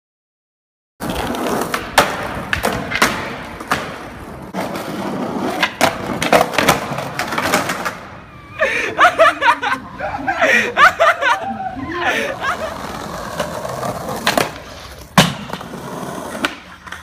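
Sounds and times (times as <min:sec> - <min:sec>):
skateboard clacks and knocks: 0:01.0 - 0:08.1, 0:12.7 - 0:17.0
skateboard wheels rumbling: 0:01.0 - 0:08.6, 0:09.4 - 0:17.0.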